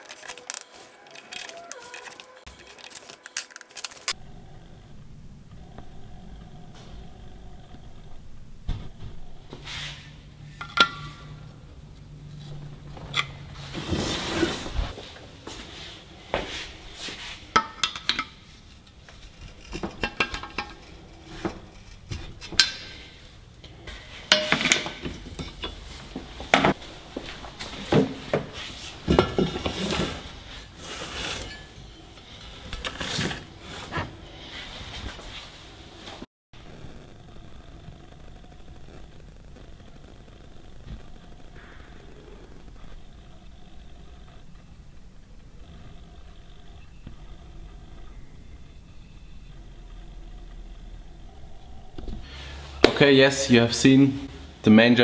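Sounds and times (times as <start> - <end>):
low steady hum: 3.8 - 53.0
scraping shuffle: 13.5 - 17.5.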